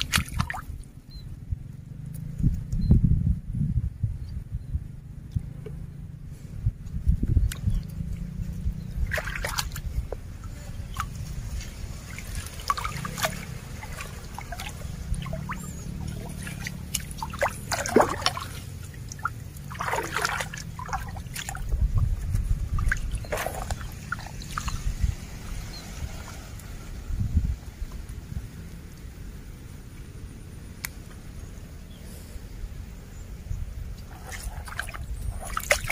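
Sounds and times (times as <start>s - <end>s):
stream water sloshing: 0.0s - 1.0s, 7.4s - 27.0s, 33.0s - 35.9s
water splashes: 0.0s - 1.0s, 7.5s - 27.8s, 33.9s - 35.9s.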